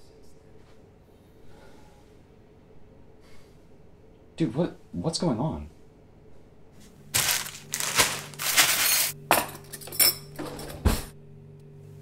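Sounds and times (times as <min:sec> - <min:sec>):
low steady hum: 0:05.7 - 0:12.0
cutlery clattering in a drawer: 0:07.8 - 0:11.1.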